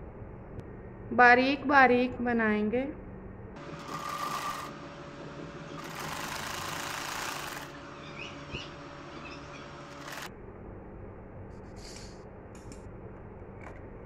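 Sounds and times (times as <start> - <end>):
sewing machine stitching: 3.6 - 4.7, 5.8 - 7.7, 9.9 - 10.3.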